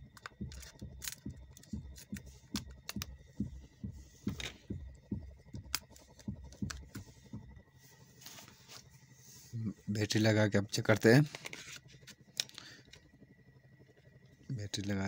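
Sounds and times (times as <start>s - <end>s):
low regular thumping: 0.0s - 10.6s.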